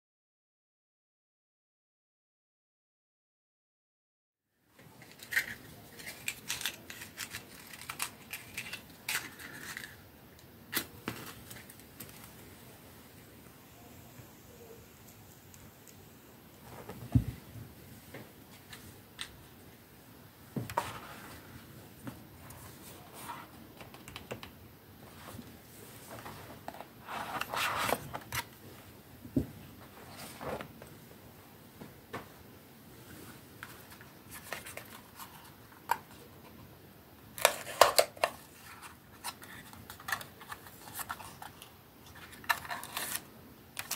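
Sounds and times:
cardboard rustling and scraping: 20.6s - 21.6s, 22.4s - 23.6s, 25.1s - 28.5s, 29.8s - 30.8s.

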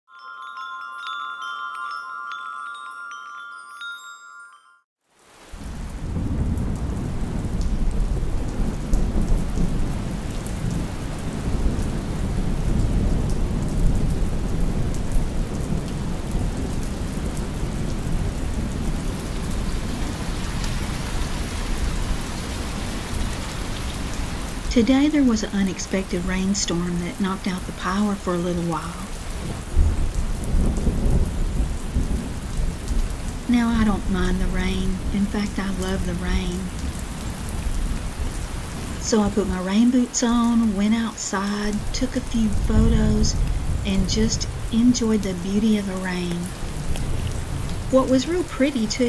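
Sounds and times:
ringing chime tones: 0.1s - 4.9s
heavy rain: 5.0s - 49.0s
thunder rumble: 5.5s - 48.8s.

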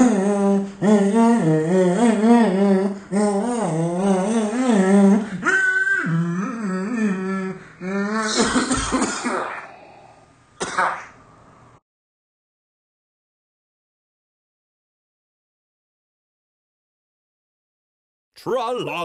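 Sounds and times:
person humming: 0.0s - 8.4s.

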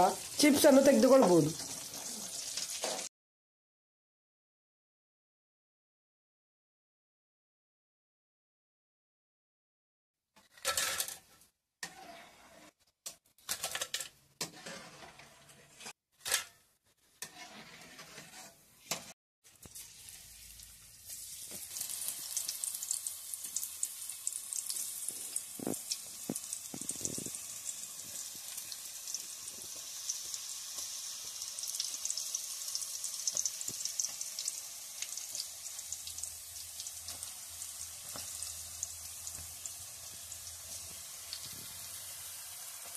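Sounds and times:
chips deep-frying in oil: 0.0s - 3.1s, 19.4s - 42.9s
ladle scraping metal strainer: 14.4s - 16.4s, 17.0s - 19.1s.

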